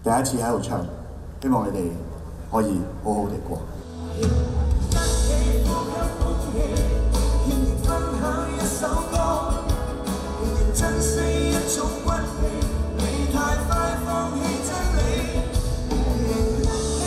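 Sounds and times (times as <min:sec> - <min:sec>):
rock band with orchestra: 0:03.8 - 0:17.0
man singing: 0:04.9 - 0:17.0.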